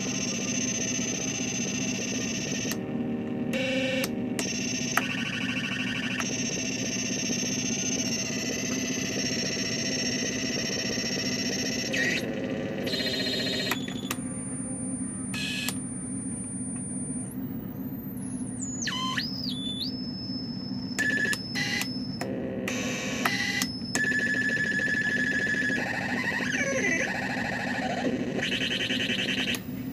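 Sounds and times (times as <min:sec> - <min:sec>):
synthesizer low buzzing drone: 0:00.0 - 0:29.9
high whistling synthesizer tones: 0:17.0 - 0:22.2.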